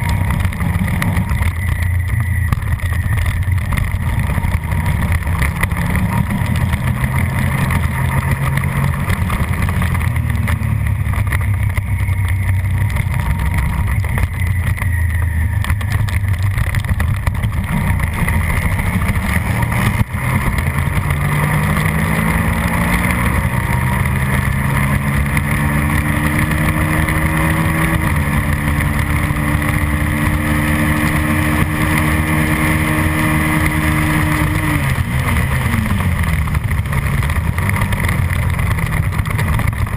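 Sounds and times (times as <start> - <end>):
motorcycle engine at race pace: 0.0 - 39.9.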